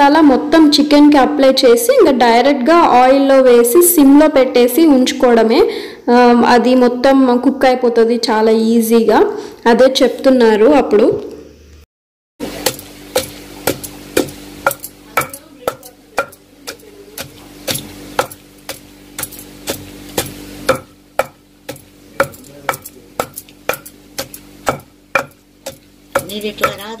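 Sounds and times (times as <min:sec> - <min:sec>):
wooden pestle pounding in stone mortar: 0:12.5 - 0:27.0.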